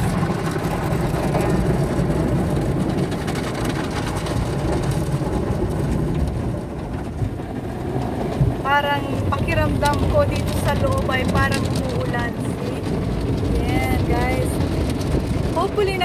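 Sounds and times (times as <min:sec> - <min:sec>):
car wash water drumming on roof: 0:00.0 - 0:16.0.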